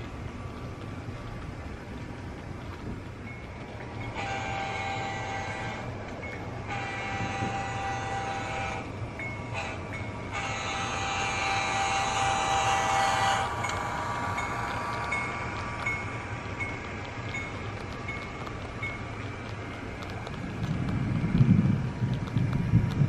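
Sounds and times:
diesel locomotive horn blasts: 0:04.1 - 0:06.0, 0:06.6 - 0:14.2.

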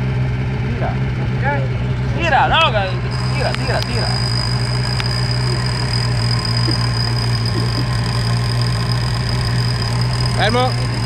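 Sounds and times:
buggy engine running: 0:00.0 - 0:11.0
high-pitched whine: 0:00.8 - 0:11.0.

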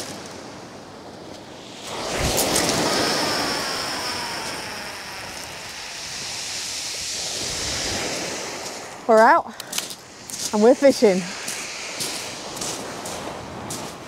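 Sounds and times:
surf hiss: 0:00.0 - 0:14.0
wind: 0:00.0 - 0:14.0
fishing reel whining: 0:01.9 - 0:06.6.

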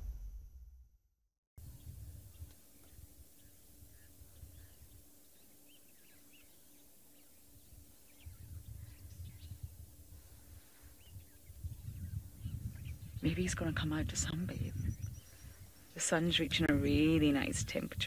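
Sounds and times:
low rumble: 0:00.0 - 0:00.9
birds chirping: 0:01.8 - 0:18.0.

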